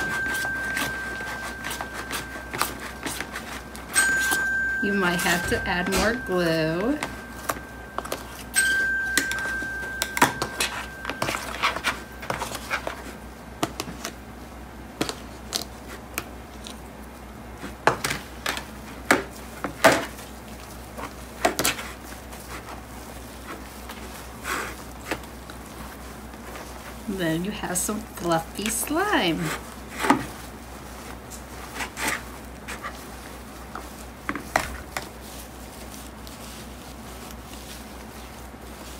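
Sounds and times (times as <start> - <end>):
thin high tone: 0.0 - 12.7.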